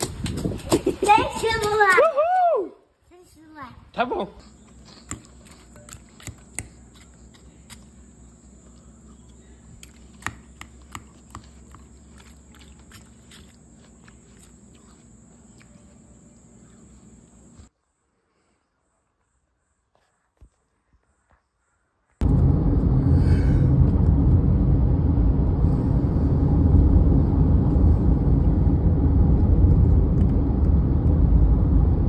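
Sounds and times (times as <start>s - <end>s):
high-pitched background drone: 22.2s - 32.0s.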